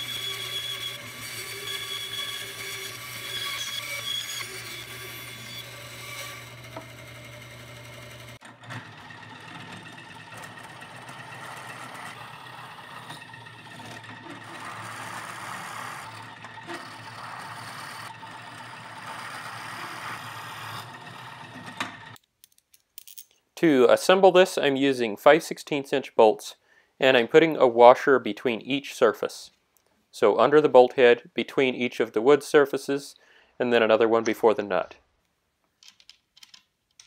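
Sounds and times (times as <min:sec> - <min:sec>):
band saw humming: 0:00.0 - 0:22.2
drill press boring through plywood: 0:00.0 - 0:22.2.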